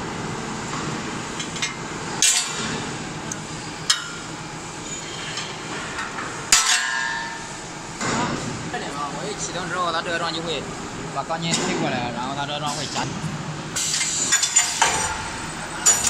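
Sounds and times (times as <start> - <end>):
workshop noise: 0.7 - 16.0
metallic clanks of steel: 15.8 - 16.0.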